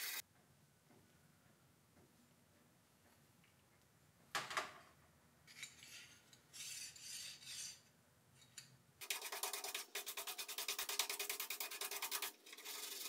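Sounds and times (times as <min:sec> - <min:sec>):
steel slide scraping metal beam: 0:05.8 - 0:07.9, 0:12.4 - 0:13.0.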